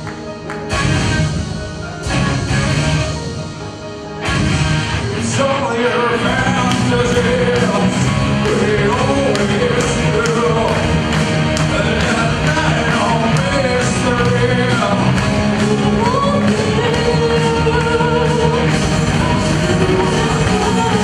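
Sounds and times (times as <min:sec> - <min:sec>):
rock band playing live: 0:00.0 - 0:21.0
lead vocal singing: 0:05.1 - 0:21.0.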